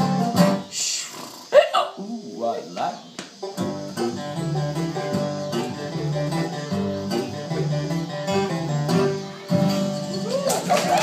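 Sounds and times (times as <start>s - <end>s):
acoustic guitar strumming: 0.0s - 0.7s, 3.3s - 11.0s
upright bass notes: 0.0s - 0.7s, 3.5s - 11.0s.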